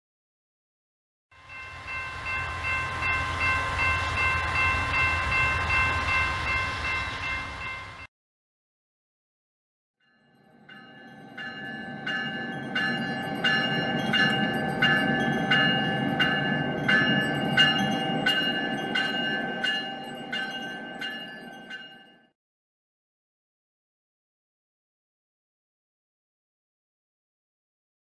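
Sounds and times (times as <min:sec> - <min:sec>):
locomotive bell ringing: 0:01.4 - 0:08.1, 0:10.1 - 0:22.4
train rumble: 0:01.4 - 0:08.1.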